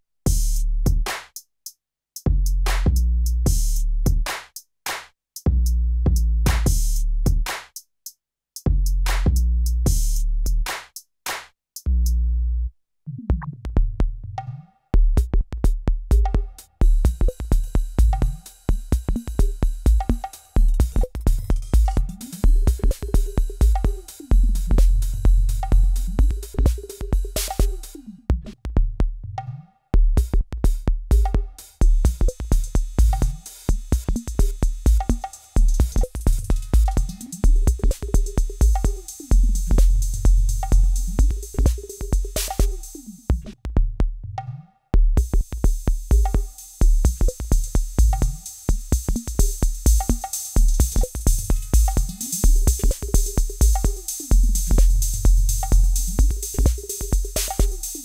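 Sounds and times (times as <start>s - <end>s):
heavy kick drum: 0.3s - 1.1s, 2.3s - 4.3s, 5.5s - 7.5s, 13.7s - 14.2s, 15.0s - 29.2s, 30.0s - 44.3s, 45.0s - 58.0s
ticking hi-hats: 6.5s - 7.8s, 15.2s - 28.1s, 30.2s - 43.6s, 45.2s - 58.0s.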